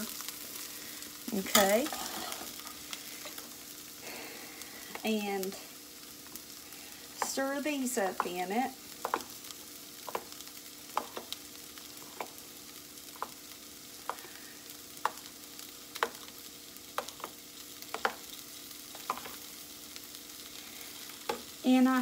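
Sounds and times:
metal spoon stirring beans: 1.4s - 2.6s, 8.1s - 9.4s, 18.9s - 19.5s.

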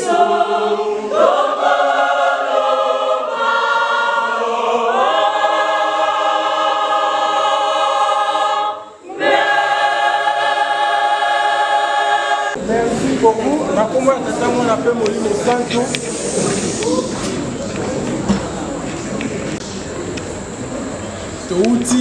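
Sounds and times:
church choir singing: 0.0s - 16.9s.

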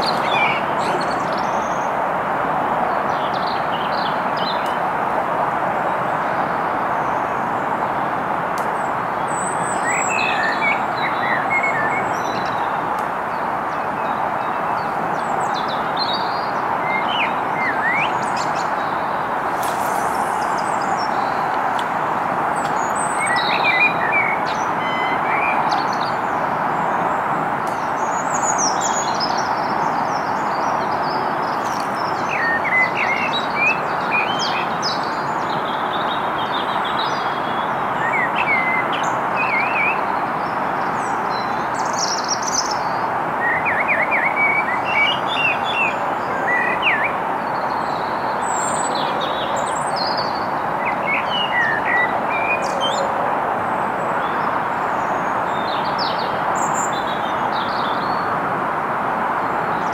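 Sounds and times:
small songbirds chirping: 0.0s - 2.2s, 5.8s - 58.4s
steady rushing noise: 18.2s - 23.9s.

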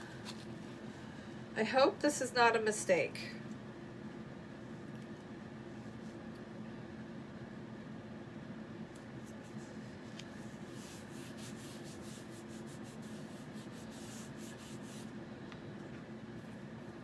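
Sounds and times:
steady low room hum: 0.0s - 17.0s
fingertips rubbing on plastic stencil: 9.2s - 15.2s
scratchy strokes: 9.2s - 15.2s.

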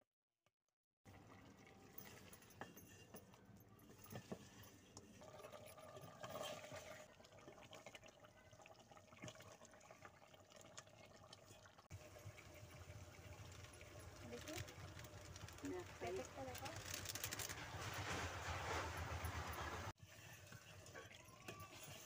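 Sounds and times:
wooden spatula scraping pot: 2.0s - 7.6s, 12.3s - 22.0s
chicken sizzling in a pot: 4.4s - 16.8s, 17.6s - 22.0s.

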